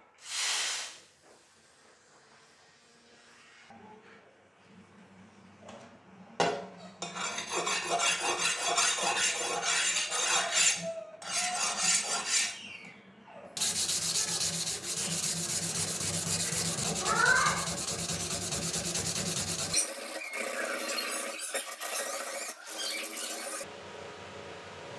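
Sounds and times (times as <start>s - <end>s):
abrasive scraping steel blade: 7.0s - 12.7s.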